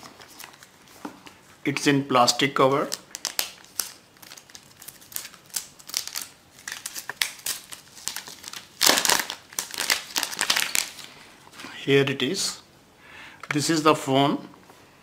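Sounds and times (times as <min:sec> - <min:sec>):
plastic wrap crackling: 0:02.8 - 0:11.3.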